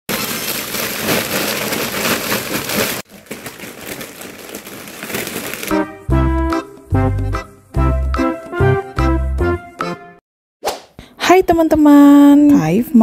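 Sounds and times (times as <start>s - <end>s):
plastic wrappers crinkling: 0.1s - 5.7s.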